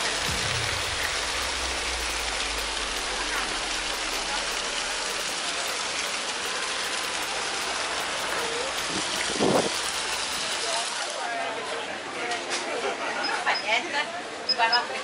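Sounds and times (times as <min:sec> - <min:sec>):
fountain water splashing into basin: 0:00.0 - 0:11.6.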